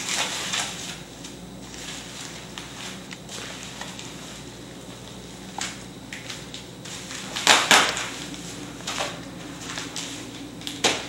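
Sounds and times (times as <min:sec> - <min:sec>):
bubble wrap crinkling: 0:05.6 - 0:11.0.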